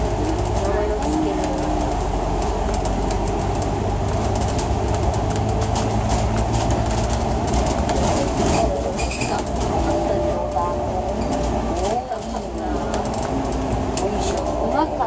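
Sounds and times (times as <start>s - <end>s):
bus engine and road rumble: 0.0s - 15.0s
bodywork rattling: 0.1s - 9.8s.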